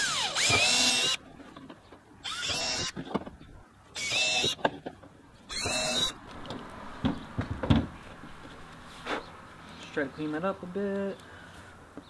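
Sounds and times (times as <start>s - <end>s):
cordless drill whining: 0.0s - 1.2s
plastic knocks and rattles: 6.5s - 7.9s.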